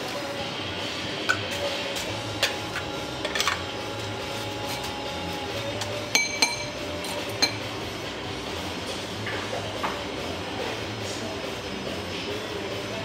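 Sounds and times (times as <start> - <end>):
fork tapping with metallic ring: 5.8 - 7.6
metal fork clinking on tin: 6.1 - 7.6.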